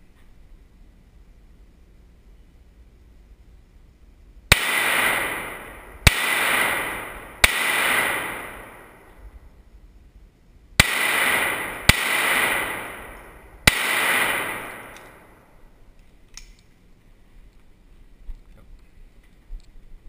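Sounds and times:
pistol shots echoing in tunnel: 4.5 - 9.4, 10.8 - 15.8.

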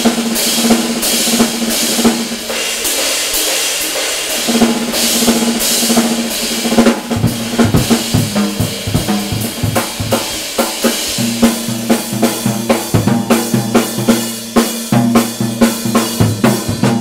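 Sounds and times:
cymbals: 0.0 - 17.0
drums and bass drum: 0.0 - 17.0.

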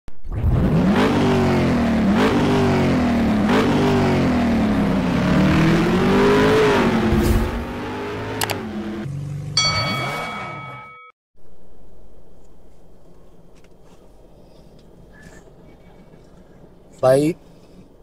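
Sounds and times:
motorcycle engine revving: 0.5 - 9.6.

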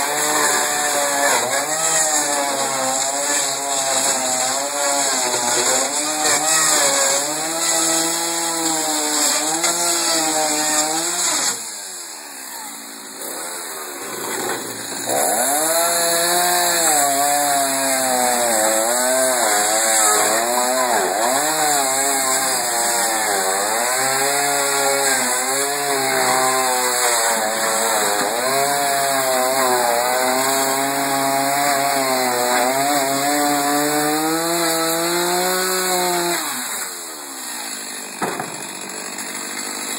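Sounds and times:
chainsaw cutting wood: 0.0 - 39.9.

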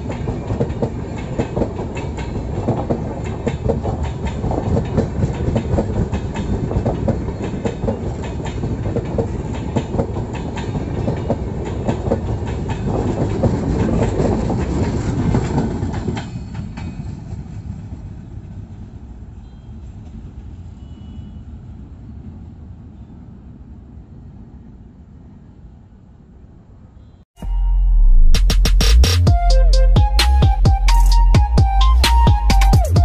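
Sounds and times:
train wheels clattering on rails: 0.0 - 19.0
train rumble: 0.0 - 20.9.

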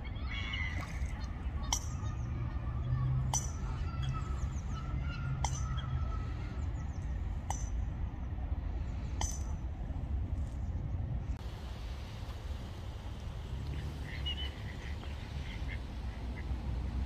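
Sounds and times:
coots calling: 0.0 - 7.6, 13.7 - 16.8
low steady rumble: 0.0 - 17.0.

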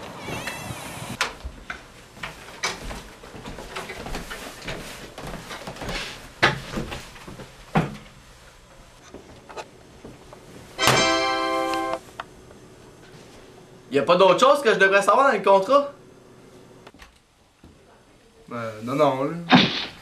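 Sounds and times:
footsteps: 0.0 - 7.9.

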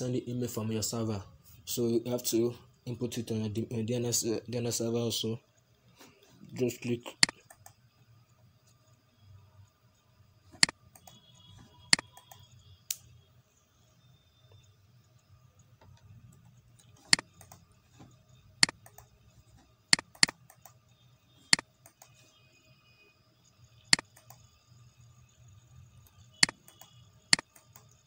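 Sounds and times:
computer mouse button clicks: 20.0 - 20.8.

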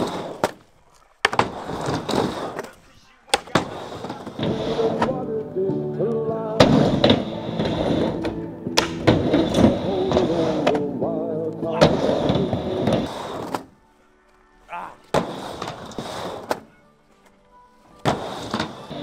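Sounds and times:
skateboard clacking: 0.0 - 13.8, 15.1 - 16.7, 18.0 - 19.0
skateboard wheels rolling: 0.0 - 14.4, 15.0 - 19.0
music: 4.2 - 19.0.

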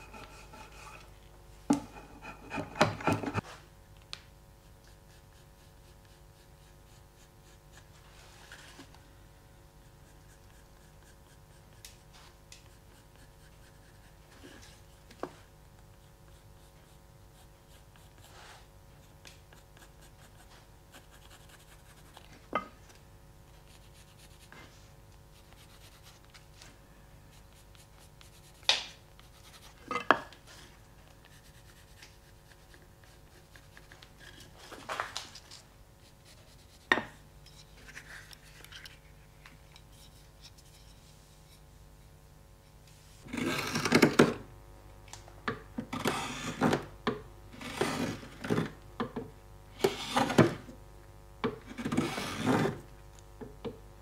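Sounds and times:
pencil scratching on wood: 0.0 - 1.1, 1.8 - 3.4, 4.8 - 8.0, 12.6 - 14.7, 19.5 - 22.2, 29.3 - 29.8.

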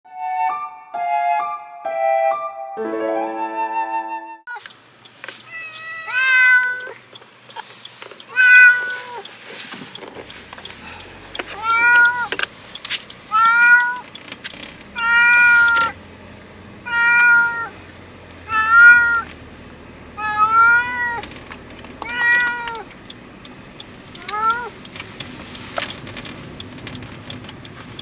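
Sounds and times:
cat meowing loudly: 5.5 - 7.0, 8.3 - 9.2, 11.6 - 12.4, 13.3 - 14.1, 15.0 - 16.0, 16.8 - 17.8, 18.5 - 19.3, 20.2 - 21.3, 22.0 - 22.9.

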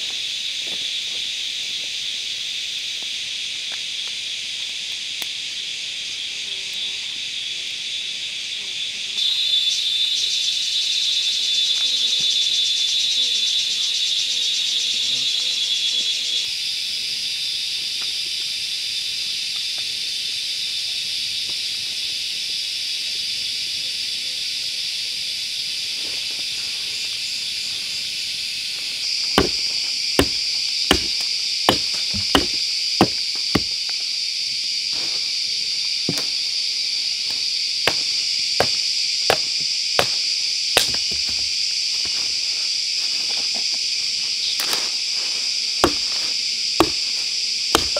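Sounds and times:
high-pitched insect chorus: 0.0 - 47.9
hatchet chopping wood: 29.4 - 33.8, 37.9 - 41.5, 45.8 - 46.2, 46.8 - 47.9.

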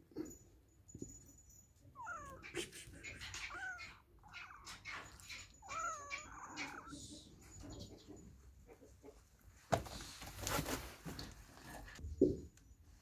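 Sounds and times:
cat meowing: 2.0 - 7.2.

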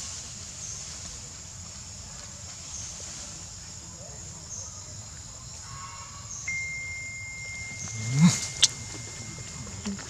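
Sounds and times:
constant high hiss: 0.0 - 10.0
low rumble: 6.5 - 10.0.

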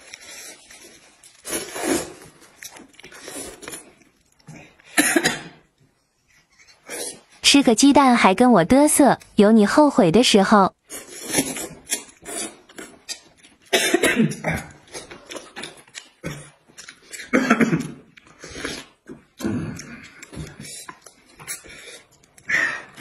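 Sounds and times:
noodles being slurped: 0.0 - 4.3.

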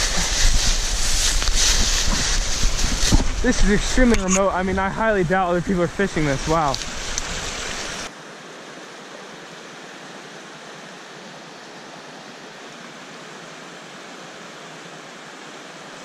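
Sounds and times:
stream rushing over stones: 0.0 - 16.0.

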